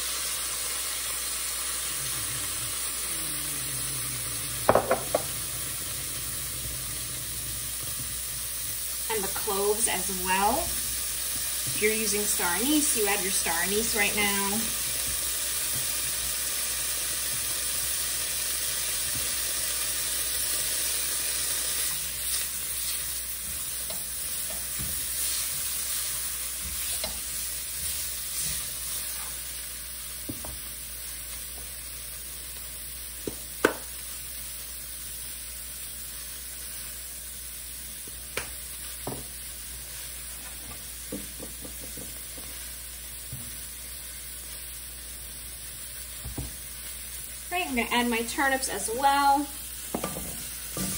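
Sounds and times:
leeks sizzling in butter: 0:00.0 - 0:50.9
spatula tapping on pan: 0:04.7 - 0:05.3, 0:33.2 - 0:33.9, 0:41.1 - 0:42.2, 0:49.9 - 0:50.3.

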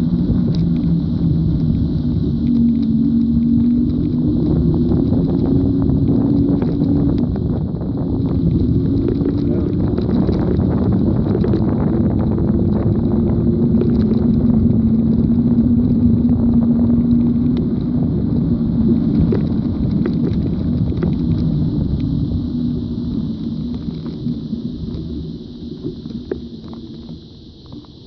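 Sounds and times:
hum: 0:00.0 - 0:28.0
road noise rumble: 0:00.0 - 0:28.0
small clicks: 0:23.7 - 0:28.0.

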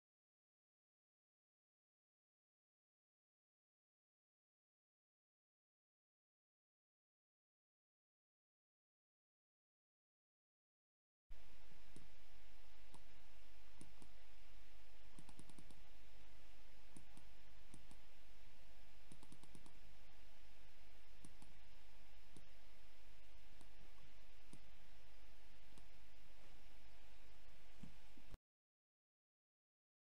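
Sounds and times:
low hum and hiss: 0:11.3 - 0:28.4
computer mouse clicking: 0:11.9 - 0:12.1, 0:12.9 - 0:13.1, 0:13.8 - 0:14.2, 0:15.1 - 0:15.9, 0:16.9 - 0:18.1, 0:19.1 - 0:19.8, 0:21.2 - 0:21.6, 0:23.6 - 0:24.7, 0:25.7 - 0:25.9, 0:27.8 - 0:28.0.

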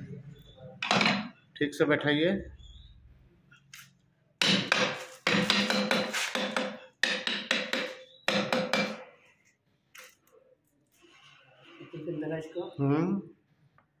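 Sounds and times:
hammer striking metal: 0:00.8 - 0:01.3, 0:04.4 - 0:09.0.

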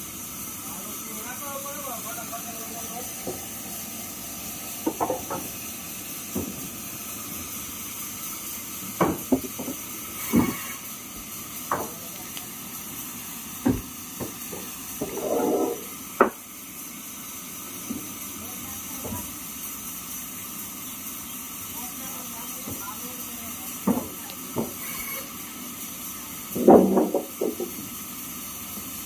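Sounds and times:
steady hiss: 0:00.0 - 0:29.0
wooden beams knocking together: 0:04.8 - 0:05.5, 0:09.0 - 0:10.6, 0:11.7 - 0:12.0, 0:13.6 - 0:15.2, 0:23.8 - 0:24.8, 0:26.6 - 0:27.8
wood scraping slide: 0:09.4 - 0:10.8, 0:15.0 - 0:15.9.

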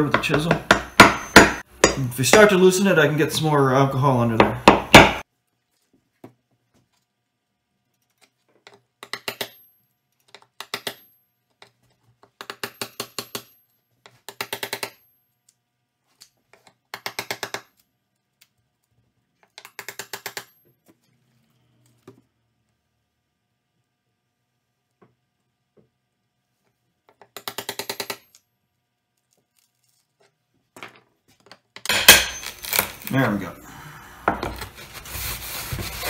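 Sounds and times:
hammer tapping a chisel: 0:00.1 - 0:02.6.

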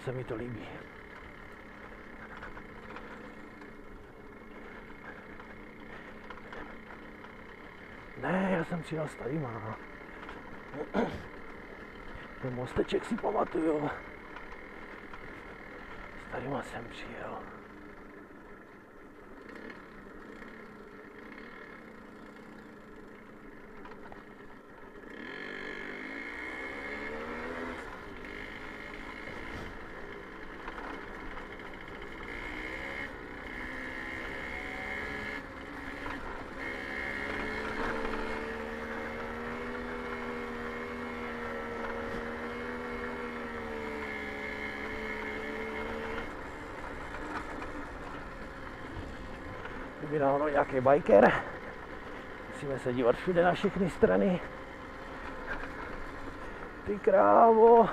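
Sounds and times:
two-stroke moped engine running: 0:00.0 - 0:57.9.

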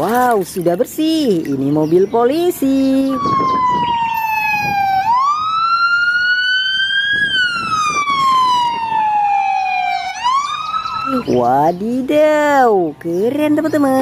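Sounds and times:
road traffic rumble: 0:00.0 - 0:14.0
police siren wailing: 0:03.0 - 0:11.6.

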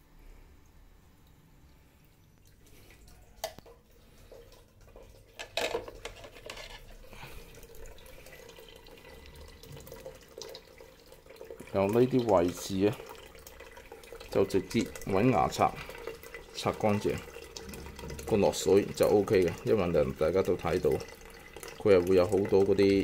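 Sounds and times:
water splashing and dripping: 0:07.2 - 0:23.0.

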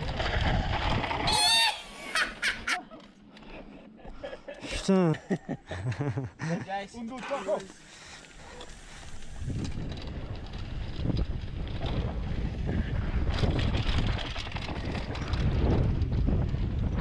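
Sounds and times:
tyres rumbling on gravel: 0:00.0 - 0:01.7
wind buffeting microphone: 0:00.0 - 0:01.7, 0:08.4 - 0:17.0
bike rattling: 0:00.0 - 0:04.0, 0:06.9 - 0:17.0.

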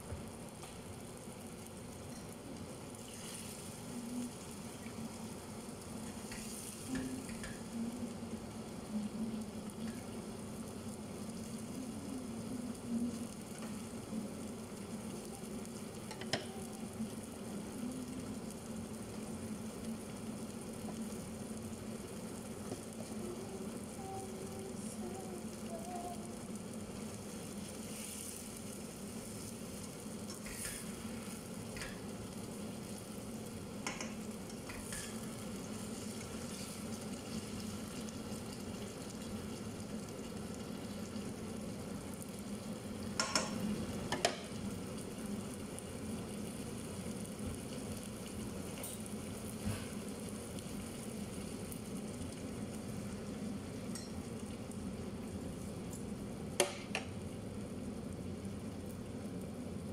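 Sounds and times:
food sizzling in a pot: 0:00.0 - 0:59.9
spatula stirring: 0:30.3 - 0:32.0, 0:33.8 - 0:35.3.

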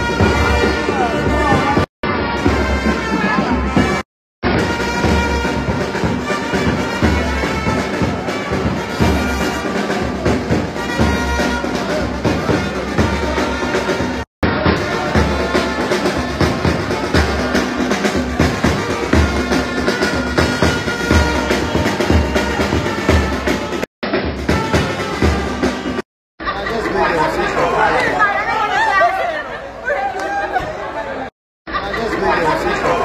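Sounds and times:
brass band playing: 0:00.0 - 0:26.0.

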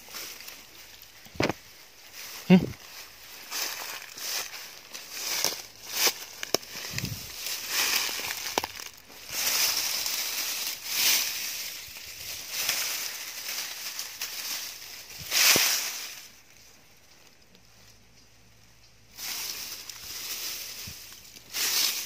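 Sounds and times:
stems snapping: 0:00.0 - 0:01.7, 0:03.4 - 0:18.3
dry grass and leaves rustling: 0:00.0 - 0:22.0.

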